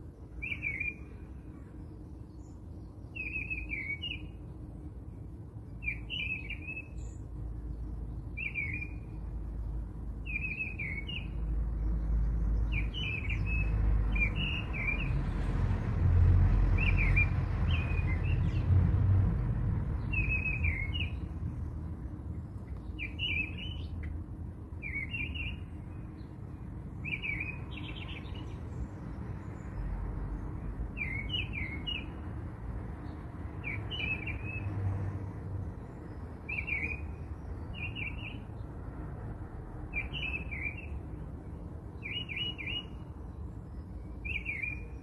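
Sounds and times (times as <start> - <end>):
small bird chirping: 1.9 - 4.4, 10.2 - 15.2, 20.0 - 21.4, 22.6 - 24.2, 24.8 - 26.3, 30.9 - 32.2, 35.9 - 38.5, 43.7 - 45.0
steady low rumble: 11.3 - 25.0.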